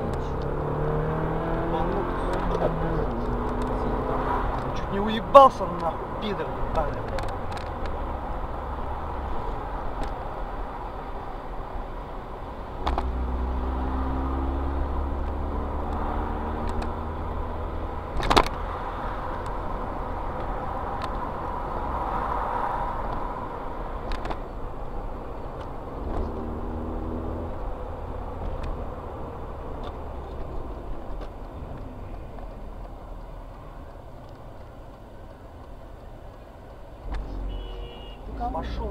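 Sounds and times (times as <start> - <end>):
car engine and tyre noise: 0.0 - 38.9.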